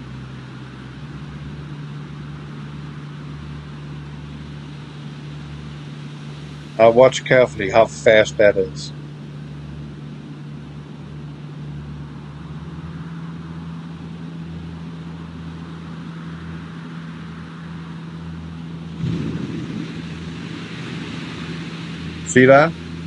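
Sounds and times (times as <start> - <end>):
low hum and hiss: 0.0 - 23.0
low rumble: 14.7 - 23.0.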